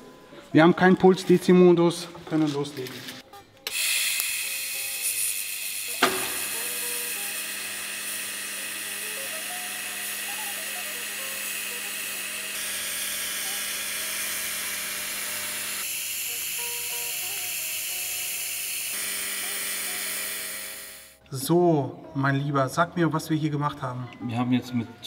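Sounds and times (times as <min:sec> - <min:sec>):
welding arc crack: 0:02.8 - 0:16.0
welding arc hissing: 0:03.7 - 0:21.2.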